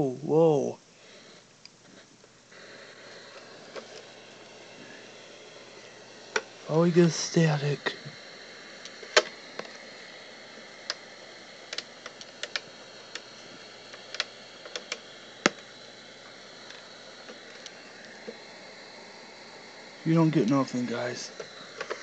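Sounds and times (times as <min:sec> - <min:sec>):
tv static hiss: 0:00.0 - 0:22.0
sharp clicks and crackles: 0:08.8 - 0:09.8, 0:11.6 - 0:15.6, 0:21.4 - 0:22.0.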